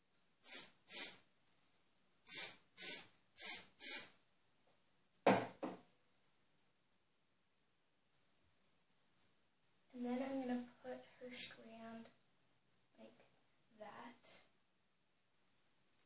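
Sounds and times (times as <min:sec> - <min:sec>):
aerosol spray can hissing: 0:00.4 - 0:01.3, 0:02.2 - 0:04.2
knock with brief rattle: 0:05.3 - 0:05.8.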